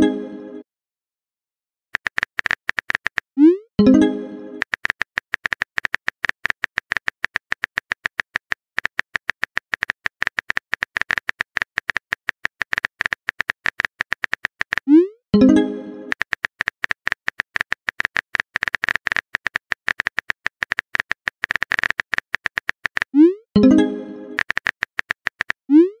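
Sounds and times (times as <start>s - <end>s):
keyboard typing clicks: 2.0s - 25.8s.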